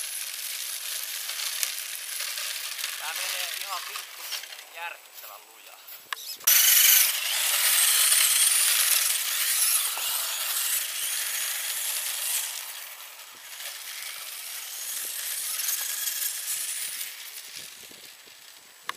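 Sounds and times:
rc truck motor whir: 0.0s - 4.8s, 6.1s - 18.9s
tyres churning snow: 6.5s - 18.9s.

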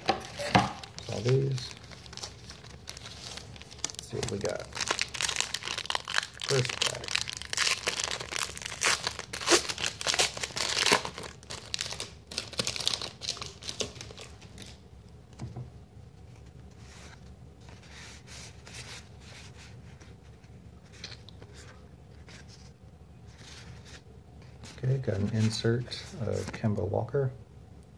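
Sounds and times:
cards rustling: 0.0s - 14.8s
foil wrapper tearing and crinkling: 0.2s - 14.8s.

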